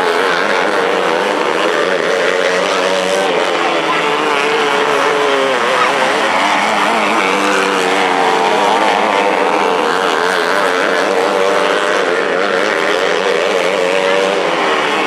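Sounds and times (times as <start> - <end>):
small race car engines revving: 0.0 - 15.0.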